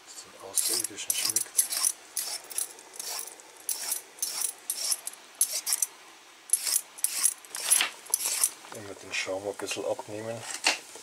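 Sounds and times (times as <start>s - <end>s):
metal ladle scraping a pot: 0.5s - 5.9s, 6.5s - 8.6s.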